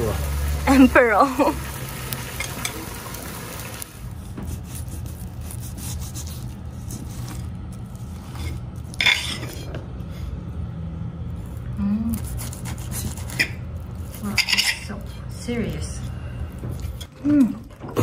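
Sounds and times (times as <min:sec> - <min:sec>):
steady low hum: 0:03.9 - 0:18.0
metal utensils scraping grill: 0:08.2 - 0:10.3, 0:12.8 - 0:17.2.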